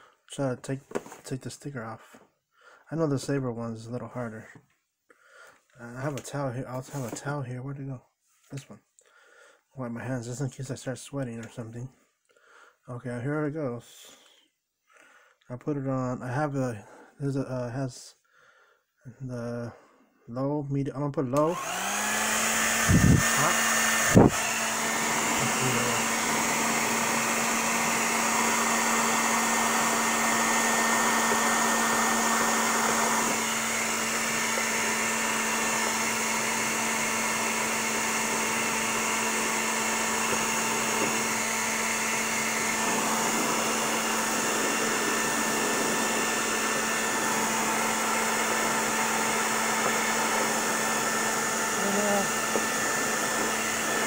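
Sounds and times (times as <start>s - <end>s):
hair dryer blowing: 6.9s - 7.2s, 21.4s - 54.0s.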